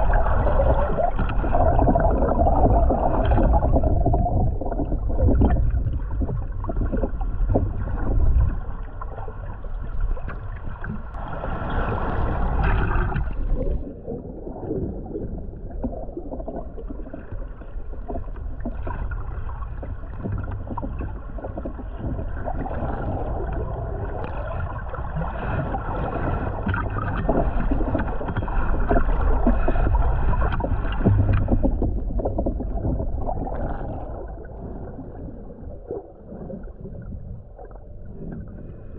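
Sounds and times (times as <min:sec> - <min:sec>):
underwater crackling and bubbling: 0:00.0 - 0:38.9
underwater rumble of moving water: 0:00.0 - 0:38.9.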